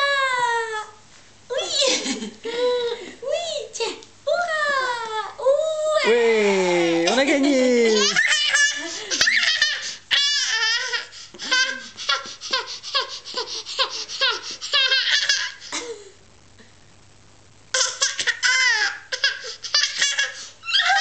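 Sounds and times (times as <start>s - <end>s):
toddler laughing: 7.8s - 15.9s, 17.8s - 21.0s.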